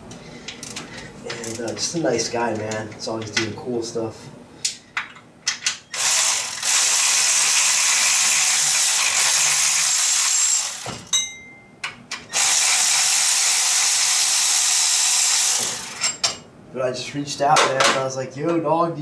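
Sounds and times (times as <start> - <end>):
power ratchet running: 6.0 - 11.1, 12.3 - 16.2.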